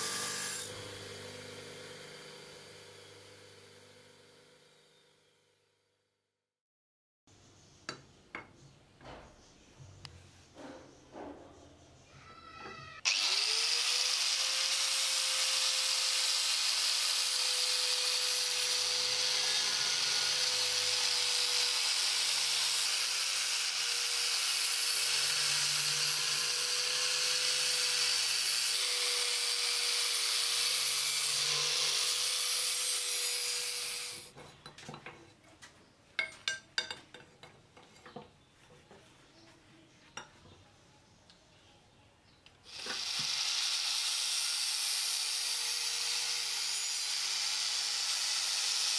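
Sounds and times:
angle grinder grinding steel: 0.0s - 5.1s, 13.0s - 34.4s, 42.7s - 48.9s.

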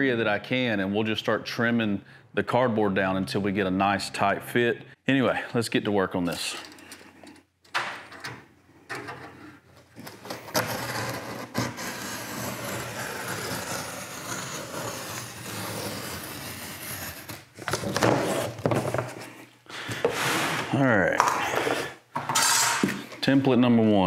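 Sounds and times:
cardboard being cut: 10.1s - 18.7s.

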